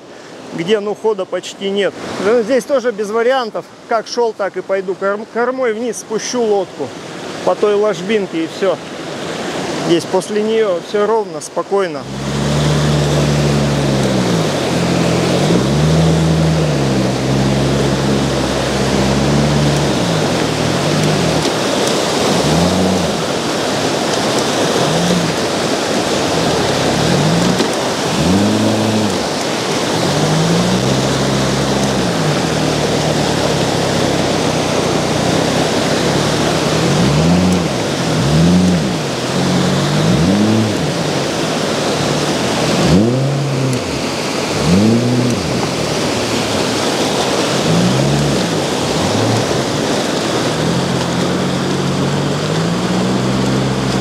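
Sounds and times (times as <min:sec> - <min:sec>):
river rapids rushing: 0:00.0 - 0:54.0
boat motor revving: 0:12.0 - 0:54.0.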